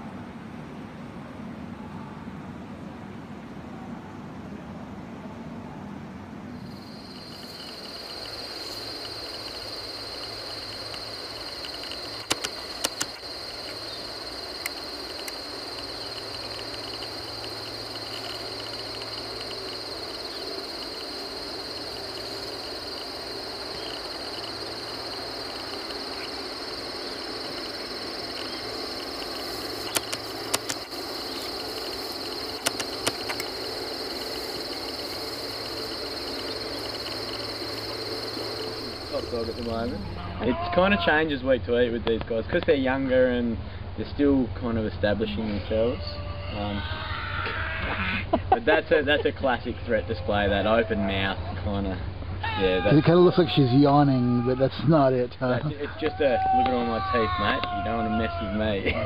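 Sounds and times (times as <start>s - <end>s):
high-pitched insect chorus: 6.6s - 41.3s, 45.1s - 59.0s
sharp clicks: 7.1s - 23.2s, 23.8s - 37.9s.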